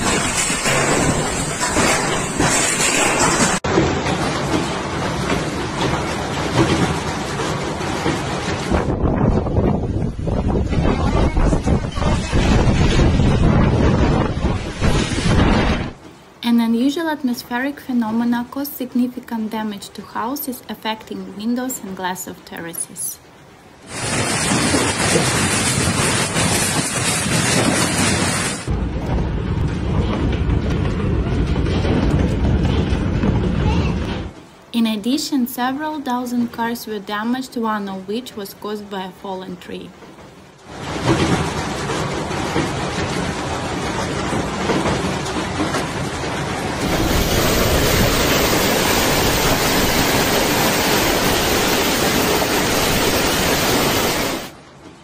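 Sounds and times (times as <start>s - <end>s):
hail clattering: 0.0s - 9.7s, 23.9s - 34.7s, 40.1s - 54.6s
hail splashing into water: 0.0s - 16.0s, 23.8s - 34.7s, 40.3s - 54.6s.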